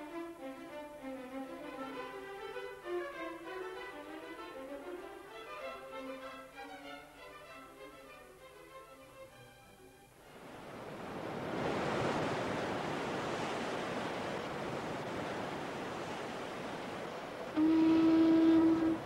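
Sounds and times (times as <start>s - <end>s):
sea surf washing: 10.2s - 19.0s
ship's horn blast: 17.4s - 19.0s.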